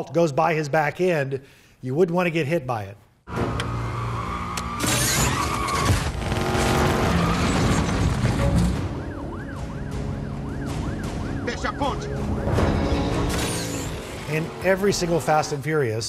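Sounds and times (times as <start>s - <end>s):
car engines: 3.3s - 16.0s
road noise: 3.3s - 16.0s
film score music: 6.0s - 15.6s
police siren wailing: 8.6s - 13.1s.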